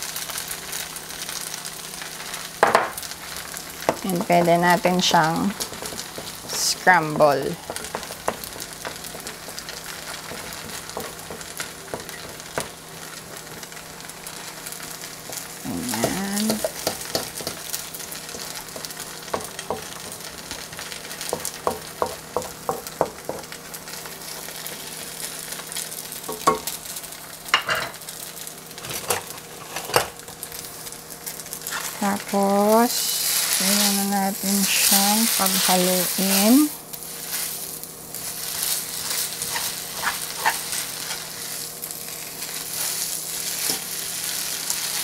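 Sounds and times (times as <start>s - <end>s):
eggs and noodles sizzling in pan: 0.0s - 45.0s
utensils clicking on pan: 3.8s - 12.8s, 15.2s - 23.5s, 26.2s - 26.7s, 31.6s - 45.0s.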